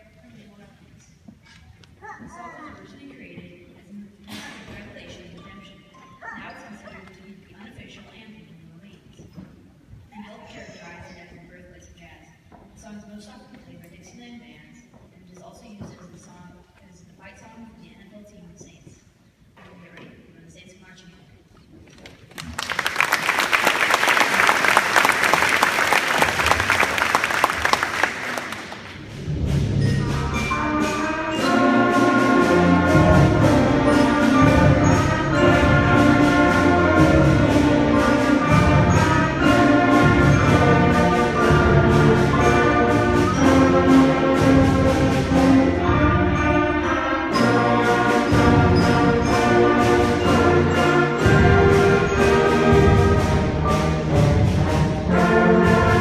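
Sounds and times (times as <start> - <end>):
audience applause: 22.2 - 29.0
concert band playing: 23.2 - 56.0
percussion strokes: 24.6 - 56.0.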